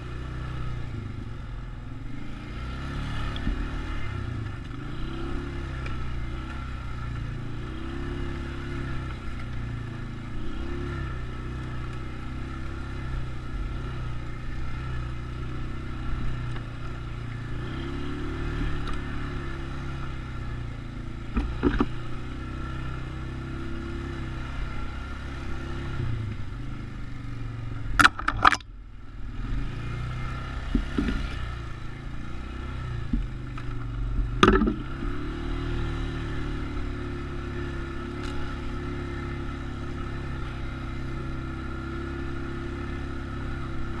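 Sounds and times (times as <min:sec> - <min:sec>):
atv engine running: 0:00.0 - 0:44.0
knocks and clatters: 0:21.3 - 0:22.0, 0:28.0 - 0:28.7, 0:33.1 - 0:34.9.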